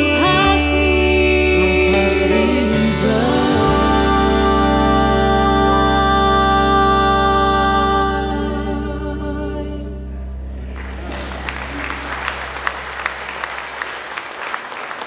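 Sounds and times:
vocal trio singing a hymn: 0:00.0 - 0:10.6
sustained instrumental backing: 0:00.0 - 0:13.4
audience applause: 0:10.7 - 0:15.0.

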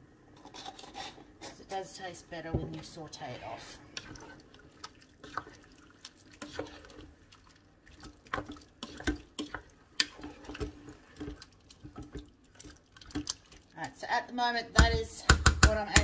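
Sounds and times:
spoon stirring wet food in pot: 0:00.3 - 0:16.0.

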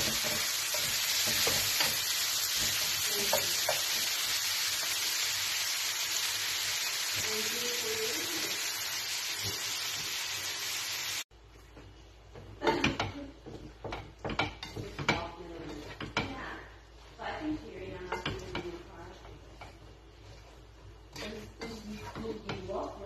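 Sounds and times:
spatula scraping a wok: 0:00.0 - 0:10.6, 0:13.4 - 0:23.0
food sizzling in a wok: 0:00.0 - 0:11.3.

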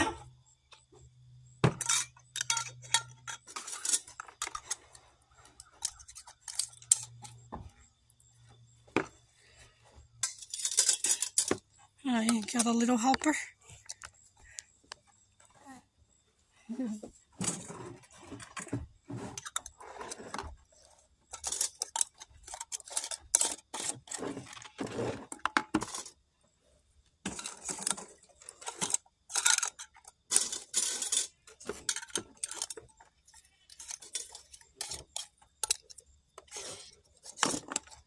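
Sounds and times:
metal lids clinking on glass jars: 0:01.6 - 0:07.5, 0:10.2 - 0:13.4, 0:21.3 - 0:26.1, 0:27.3 - 0:38.0.

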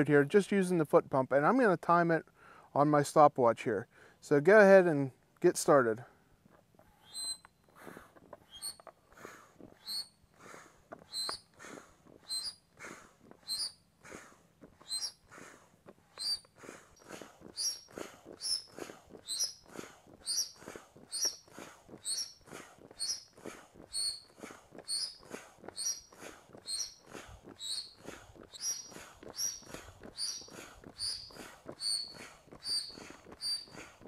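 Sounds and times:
foot bellows pump air rush: 0:06.8 - 0:34.0
squeaky whistle: 0:07.0 - 0:07.7, 0:08.5 - 0:08.8, 0:09.8 - 0:10.1, 0:11.1 - 0:11.4, 0:12.3 - 0:12.6, 0:13.5 - 0:13.8, 0:14.8 - 0:15.2, 0:16.2 - 0:16.4, 0:17.6 - 0:17.8, 0:19.3 - 0:19.6, 0:20.3 - 0:21.4, 0:22.1 - 0:22.4, 0:23.0 - 0:23.3, 0:23.9 - 0:24.3, 0:24.9 - 0:25.2, 0:25.8 - 0:27.0, 0:27.6 - 0:33.7.

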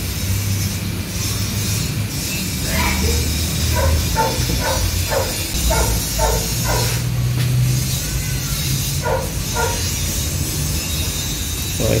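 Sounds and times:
dog barking: 0:02.7 - 0:07.1, 0:08.8 - 0:10.2.

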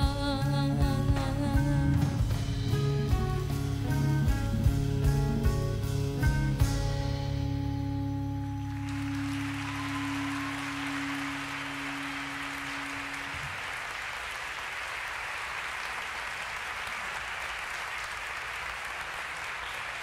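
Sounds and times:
audience applause: 0:08.6 - 0:20.0.

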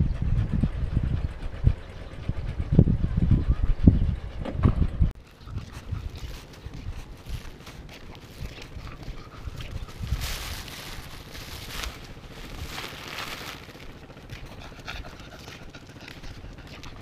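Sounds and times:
wind buffeting microphone: 0:00.0 - 0:17.0
rustling and scuffing: 0:05.7 - 0:14.6.

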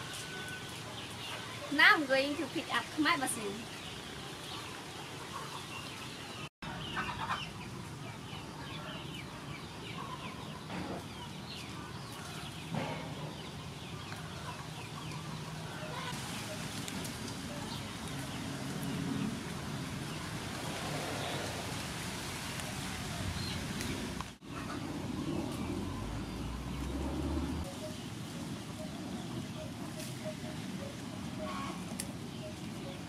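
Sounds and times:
chickens clucking: 0:06.6 - 0:18.4, 0:24.4 - 0:33.0
basil leaves rustling: 0:11.3 - 0:33.0.

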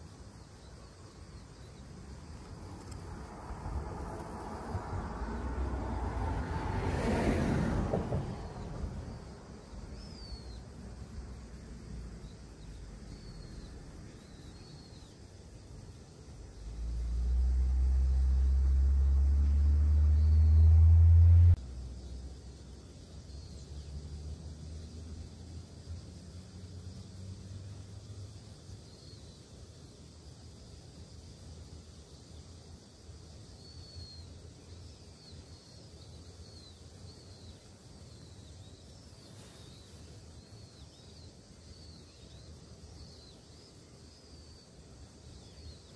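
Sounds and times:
faint bird chirps: 0:09.6 - 0:10.8, 0:12.0 - 0:22.2
motor vehicle engine rumble: 0:16.4 - 0:22.4.

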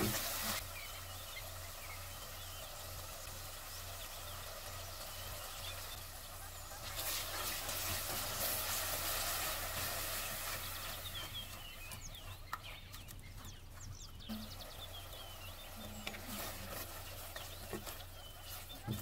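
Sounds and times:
masala sizzling in oil: 0:00.0 - 0:11.7.

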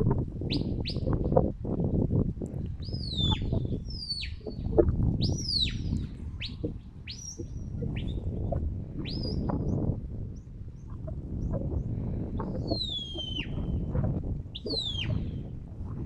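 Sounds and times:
wind rumble on microphone: 0:00.0 - 0:16.0
shepherd's whistles: 0:12.7 - 0:13.6, 0:14.6 - 0:15.2.

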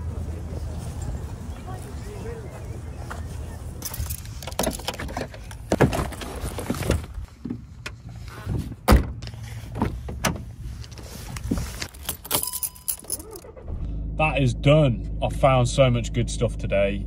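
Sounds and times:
car door unlatching and opening: 0:08.4 - 0:10.5.

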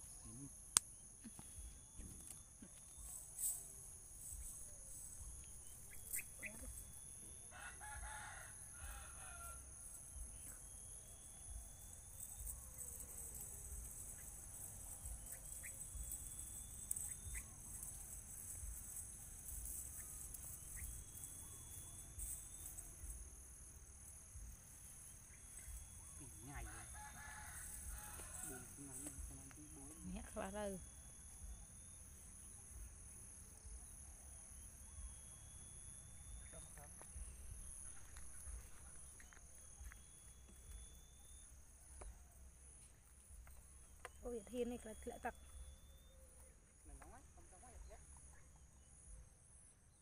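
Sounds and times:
high insect drone: 0:00.0 - 0:50.0
rooster crowing: 0:07.4 - 0:09.8, 0:26.5 - 0:28.8.

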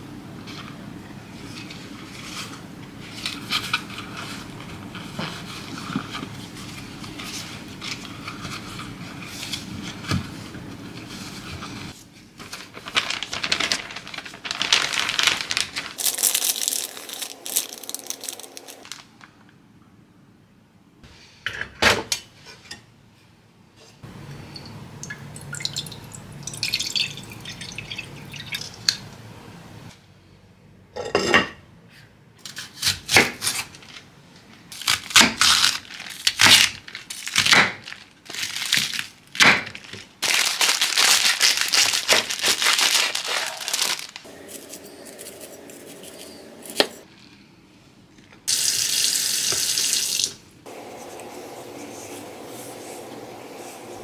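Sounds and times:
plastic bag rustling: 0:01.4 - 0:19.5, 0:33.8 - 0:47.1
plastic packaging crinkling: 0:11.2 - 0:19.5, 0:34.7 - 0:47.1.

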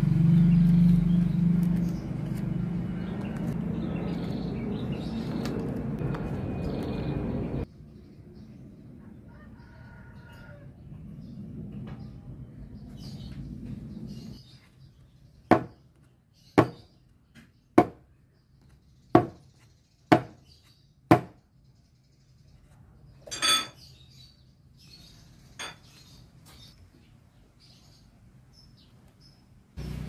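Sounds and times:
metallic clank with ring: 0:23.3 - 0:23.9.

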